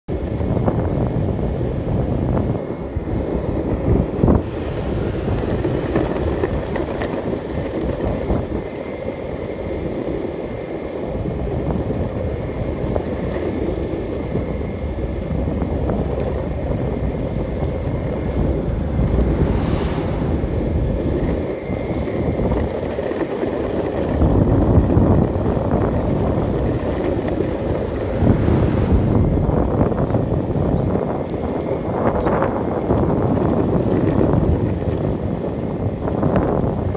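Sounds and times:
skateboard wheels rumbling on asphalt: 0.1 - 36.9
wind buffeting microphone: 0.1 - 36.9.

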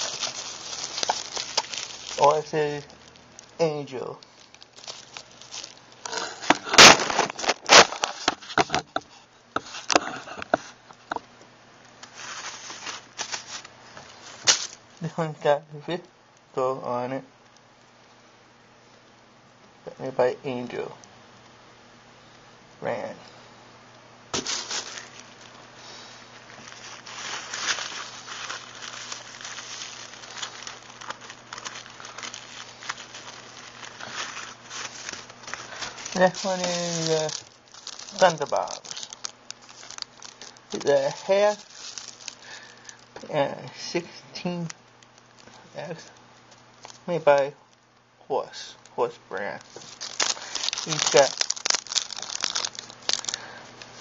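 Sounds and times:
plastic and paper wrappers crinkling: 0.0 - 11.2, 12.0 - 15.2, 24.4 - 43.3, 44.0 - 48.0, 48.7 - 54.0
faint steady hum: 0.0 - 54.0.

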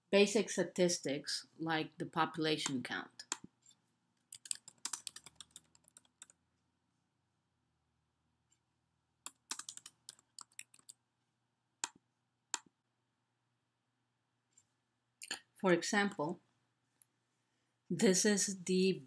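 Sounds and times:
typing on computer keyboard: 4.3 - 6.4, 9.2 - 11.0.

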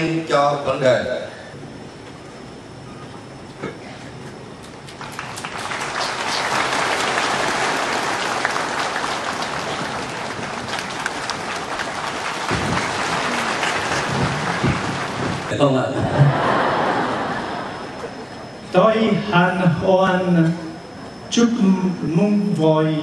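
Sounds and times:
large crowd applauding: 4.9 - 15.6.

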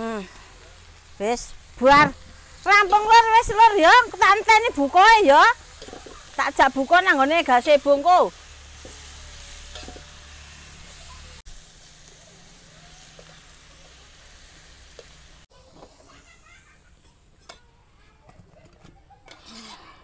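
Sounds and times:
vegetables sizzling in a wok: 0.0 - 18.2
metal spatula stirring: 1.9 - 7.6, 8.8 - 10.1, 19.3 - 20.0.

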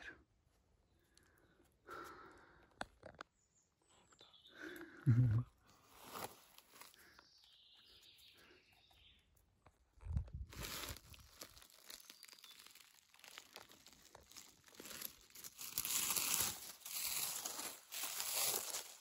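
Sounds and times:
dry leaves rustling: 10.5 - 19.0.

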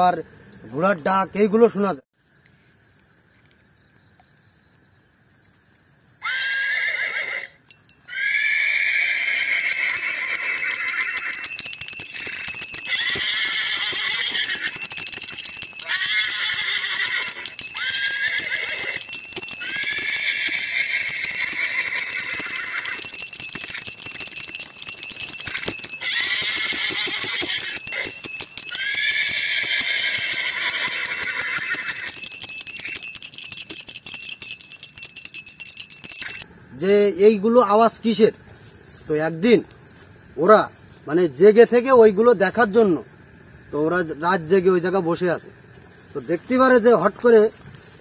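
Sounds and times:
anklet bells jingling: 7.6 - 36.5, 43.8 - 47.6.

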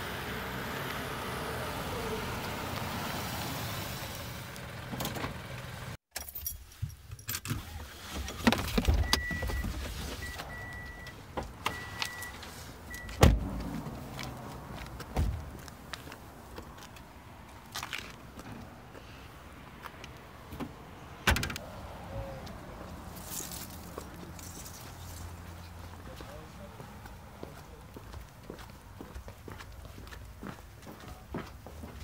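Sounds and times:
car approaching: 0.0 - 6.0, 7.6 - 32.0
high warning chime beeping: 9.0 - 13.2
car door thump: 13.1 - 13.5, 15.1 - 15.5.

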